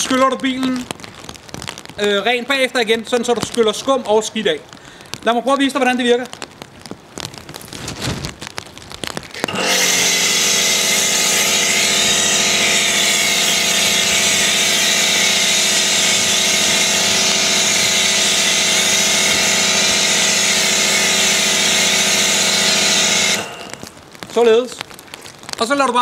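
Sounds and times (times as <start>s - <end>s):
pressure washer motor hum: 9.4s - 23.9s
spray hissing: 9.5s - 23.9s.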